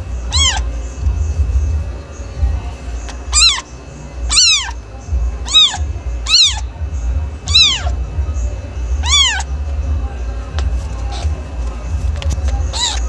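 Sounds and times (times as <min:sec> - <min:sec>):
low steady hum: 0:00.0 - 0:13.0
cat meowing: 0:00.3 - 0:00.7, 0:03.1 - 0:03.7, 0:04.3 - 0:04.8, 0:05.4 - 0:06.8, 0:07.4 - 0:08.0, 0:09.0 - 0:09.5, 0:12.6 - 0:13.0.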